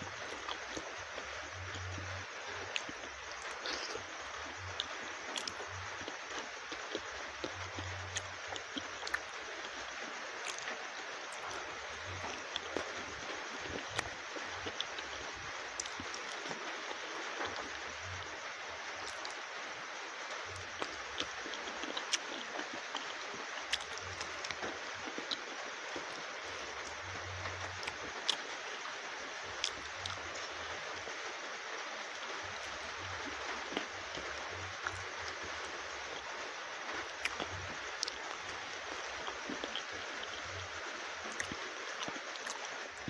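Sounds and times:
lip smacks and chewing: 1.5 - 15.1, 15.7 - 17.9, 19.0 - 19.5, 20.3 - 28.4, 29.6 - 30.5, 32.1 - 35.4, 36.9 - 40.6, 41.2 - 43.0.

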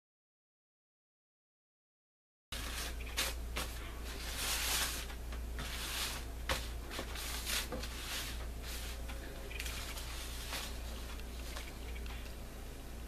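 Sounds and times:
crepe paper rustling: 2.6 - 12.3
steady low hum: 2.6 - 13.0.

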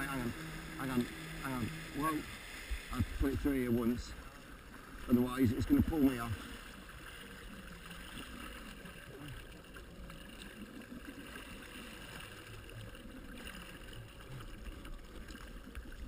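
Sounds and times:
jet ski engine: 0.0 - 6.6
water rushing in wake: 0.0 - 16.0.

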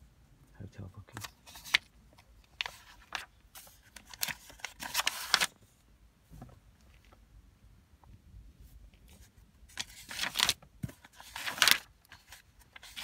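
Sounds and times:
paper pages rustling: 1.1 - 5.8, 8.9 - 13.0.

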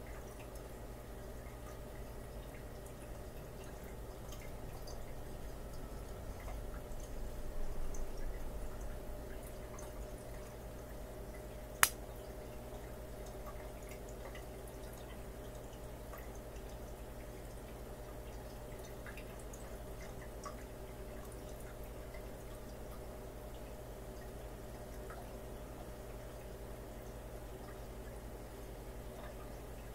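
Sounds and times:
aquarium equipment humming: 0.0 - 29.9
sharp click on shell: 11.8 - 12.0.

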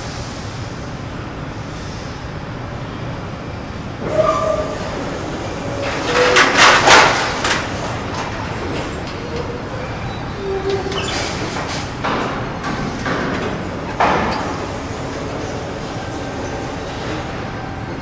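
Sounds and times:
hissing clattering bursts: 10.7 - 15.2.

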